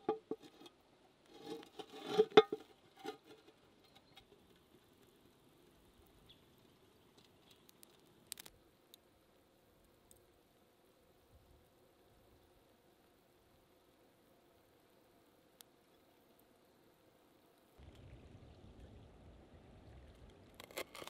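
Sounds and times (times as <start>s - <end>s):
metal pan clinks and scrapes: 1.4s - 3.4s
small clicks: 7.1s - 9.0s.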